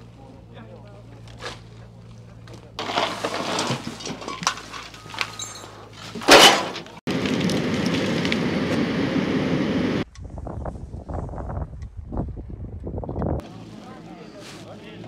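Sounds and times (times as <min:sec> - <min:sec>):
loader engine running: 0:00.0 - 0:10.0
debris clattering: 0:02.8 - 0:08.4.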